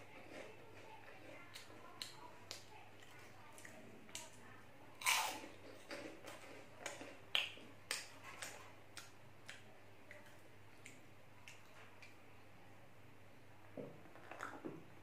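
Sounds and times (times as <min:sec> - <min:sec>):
crunching and chewing snacks: 0:05.0 - 0:10.9.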